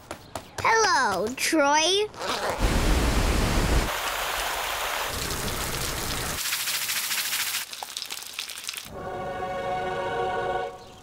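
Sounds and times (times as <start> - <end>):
lawn sprinkler spray: 2.6 - 8.9
water hiss: 2.6 - 8.9.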